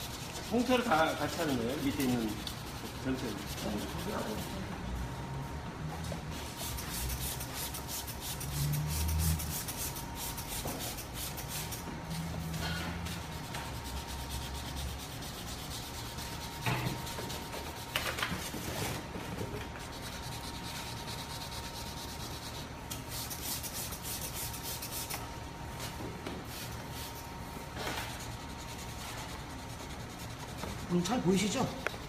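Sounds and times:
wet sanding rubbing strokes: 0:00.0 - 0:04.6, 0:06.4 - 0:17.9, 0:19.8 - 0:25.2, 0:28.1 - 0:32.0.

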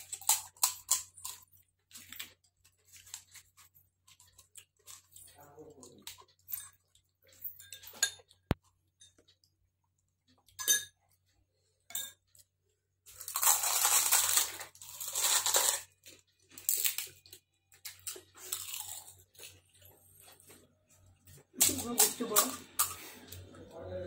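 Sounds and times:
loud crunching and chewing: 0:00.0 - 0:07.3, 0:13.0 - 0:23.4
crisp shells cracking: 0:13.1 - 0:17.2.

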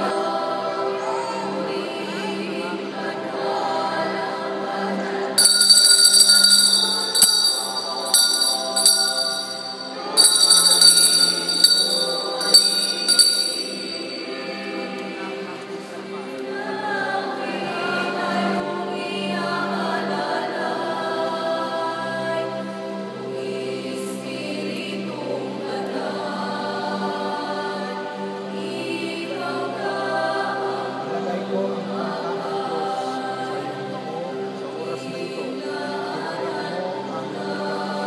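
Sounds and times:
choral singing with music: 0:00.0 - 0:38.0
bright high ringing strikes: 0:05.4 - 0:15.0.

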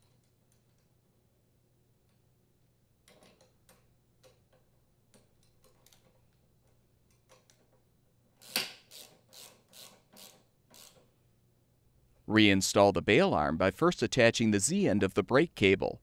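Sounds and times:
ratchet ratcheting strokes: 0:08.4 - 0:11.1.

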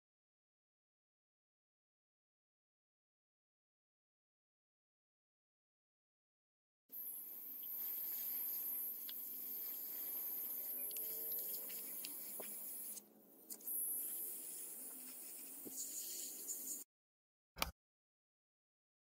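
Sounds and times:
airbrush spraying paint hiss: 0:07.0 - 0:16.9.

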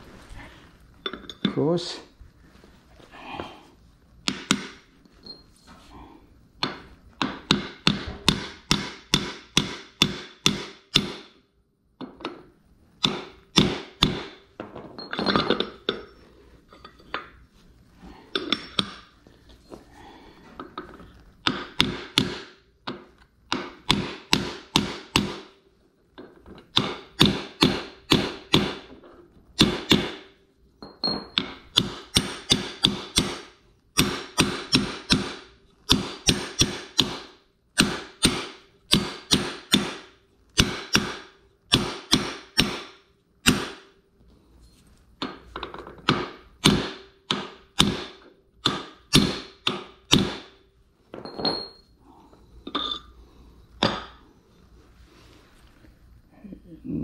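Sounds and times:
hammer striking metal: 0:04.3 - 0:04.8, 0:06.6 - 0:11.4, 0:13.0 - 0:14.4, 0:21.4 - 0:25.6, 0:26.7 - 0:28.9, 0:29.6 - 0:30.3, 0:31.0 - 0:43.9, 0:46.0 - 0:50.6, 0:53.8 - 0:54.2.

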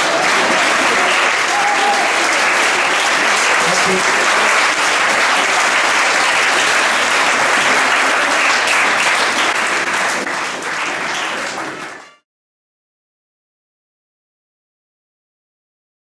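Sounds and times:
crowd applauding: 0:00.0 - 0:12.2.

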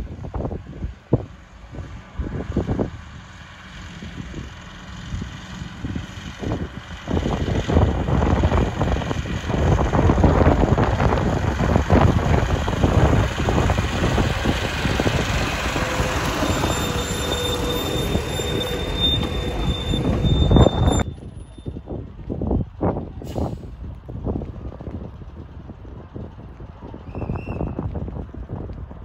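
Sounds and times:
diesel locomotive engine running: 0:00.0 - 0:29.0
wheels rattling on track: 0:00.0 - 0:29.0
high wheel squeal: 0:12.9 - 0:21.9.

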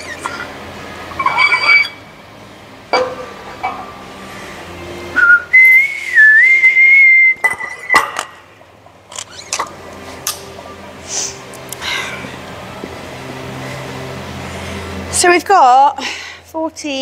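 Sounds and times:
weight plates and chains clanking: 0:01.1 - 0:02.0
high whistle: 0:05.2 - 0:07.6.

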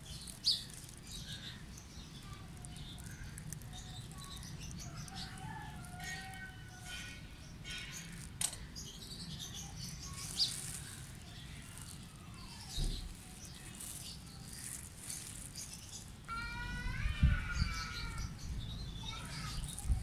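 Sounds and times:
sharp clicks and knocks: 0:08.3 - 0:08.6.

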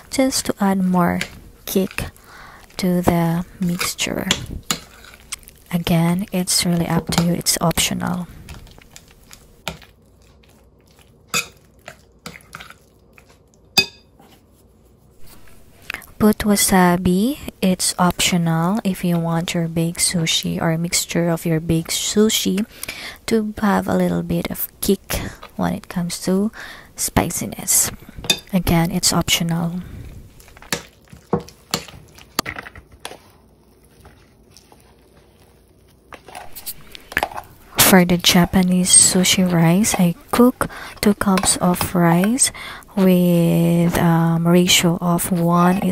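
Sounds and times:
utensil scraping ceramic bowl: 0:01.0 - 0:07.4, 0:36.1 - 0:45.9
metal spoon clinking on ceramic bowl: 0:13.8 - 0:14.1.

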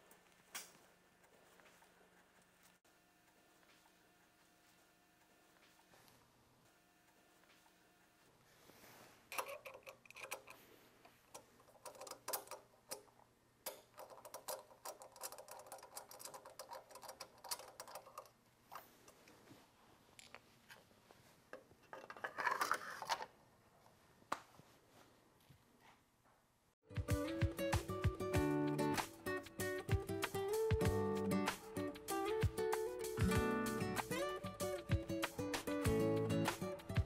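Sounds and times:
metal clicks taps and scrapes: 0:09.3 - 0:19.3.

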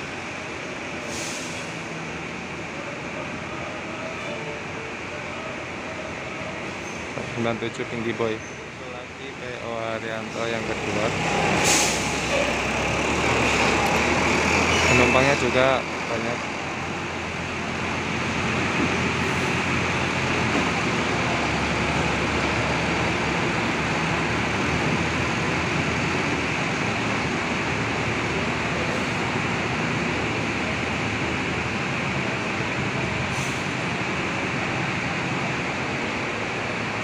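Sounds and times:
diesel bus engine rumble: 0:00.0 - 0:37.0.

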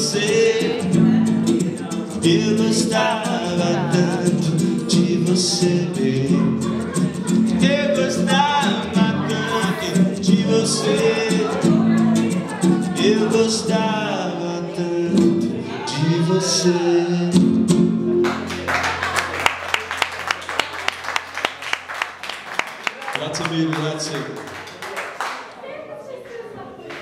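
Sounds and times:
man singing: 0:00.0 - 0:17.7
acoustic guitar: 0:00.0 - 0:23.5
audience applause: 0:18.2 - 0:25.6.

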